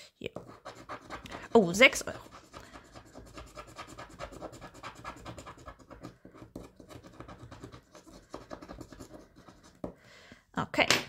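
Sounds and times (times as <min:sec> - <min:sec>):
scratching a scratch-off card: 0:00.4 - 0:09.9.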